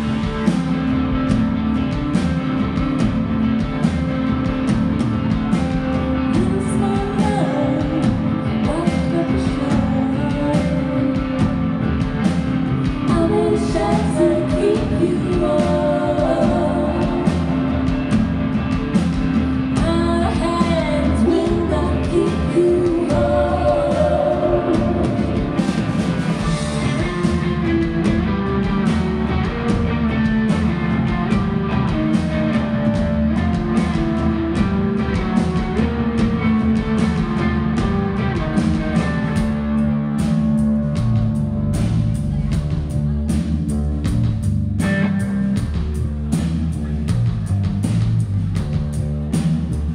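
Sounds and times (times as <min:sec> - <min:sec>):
drum kit: 0:00.0 - 0:49.9
electric guitars: 0:00.0 - 0:49.9
person singing: 0:06.2 - 0:11.5, 0:13.0 - 0:17.8, 0:19.8 - 0:27.9.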